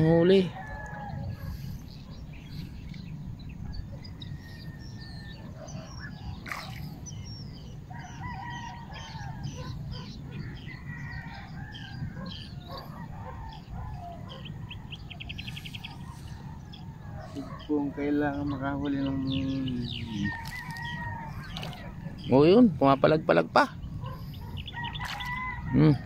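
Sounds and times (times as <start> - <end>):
roosters crowing: 0.0 - 1.6, 7.9 - 9.8, 10.4 - 15.0, 19.1 - 22.2, 24.0 - 26.0
steady low rumble: 0.0 - 8.2
birds calling: 0.0 - 26.0.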